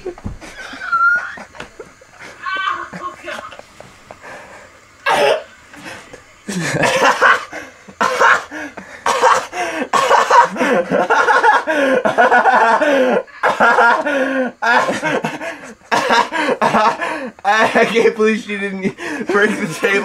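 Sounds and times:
man laughing hard: 0.0s - 3.6s, 6.5s - 18.2s, 18.8s - 20.0s
cough-like burst: 5.0s - 5.5s, 6.5s - 10.8s, 13.4s - 15.3s, 15.9s - 17.9s.

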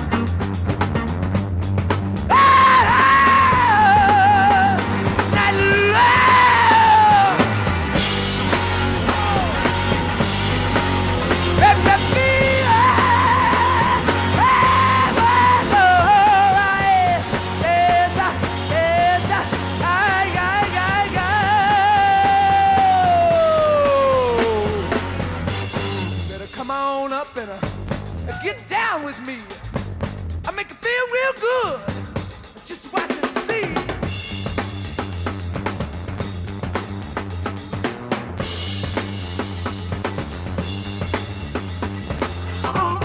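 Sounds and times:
hard rock band playing: 0.0s - 43.0s
high wordless wailing vocal: 2.3s - 7.5s, 8.9s - 9.8s, 11.6s - 25.0s, 42.6s - 43.0s.

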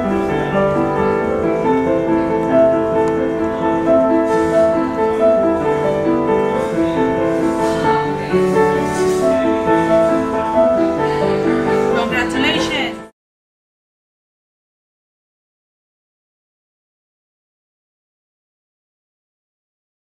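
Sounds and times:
slow piano piece: 0.0s - 13.1s.

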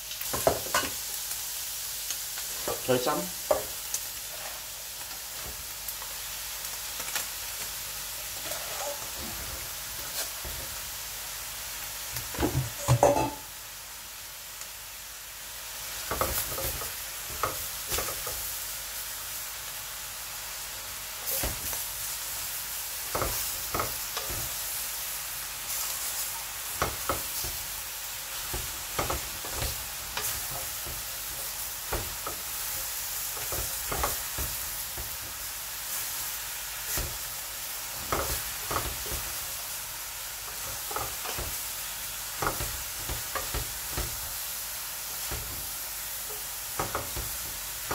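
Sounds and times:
greens sizzling in a wok: 0.0s - 47.9s
wooden spatula scraping wok: 2.4s - 6.2s, 8.0s - 11.0s, 25.7s - 39.8s, 40.4s - 47.9s.

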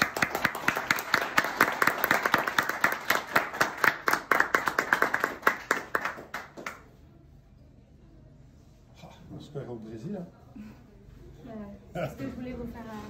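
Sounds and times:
people clapping: 0.0s - 7.1s.

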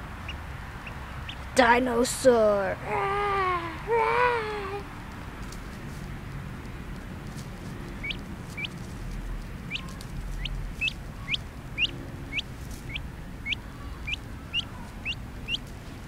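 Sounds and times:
duckling peeping: 0.0s - 1.6s, 6.9s - 16.0s.

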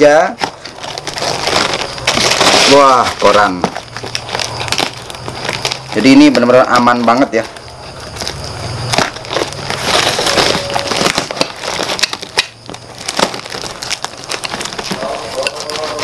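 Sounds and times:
cardboard and tape being cut and torn: 0.2s - 16.0s.

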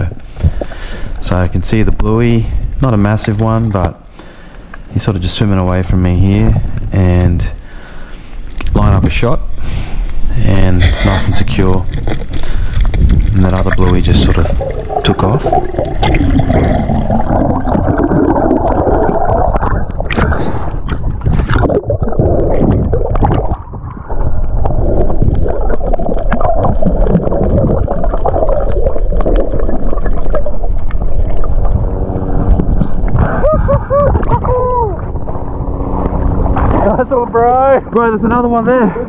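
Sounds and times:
water gurgling and sloshing: 0.0s - 39.0s.

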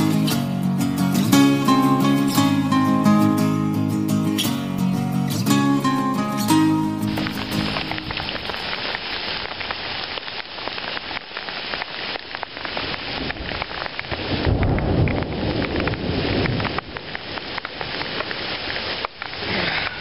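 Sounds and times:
hail pattering on ground and rocks: 5.8s - 20.0s
thunder rumble: 7.0s - 9.8s, 12.9s - 18.4s.

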